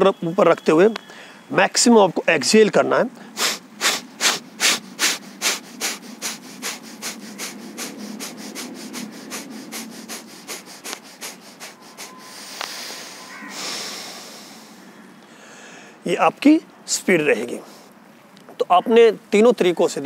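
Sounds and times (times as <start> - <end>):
long steady breath: 1.0 - 1.5, 3.2 - 16.0
rapid forceful nasal exhalations: 3.2 - 16.0.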